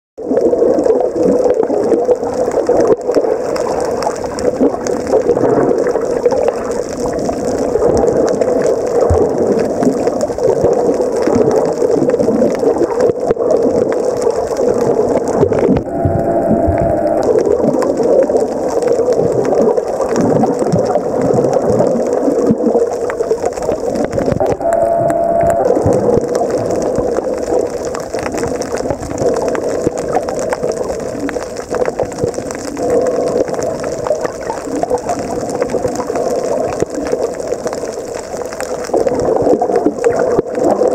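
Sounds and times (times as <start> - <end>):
underwater rushing water: 0.2 - 40.9
brief humming tone: 15.8 - 17.9, 24.4 - 26.9.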